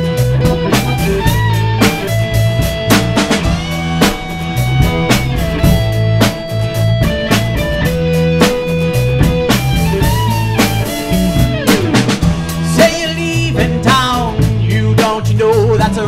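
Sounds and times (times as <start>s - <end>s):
rock band playing: 0.0s - 16.0s
man singing: 12.6s - 16.0s.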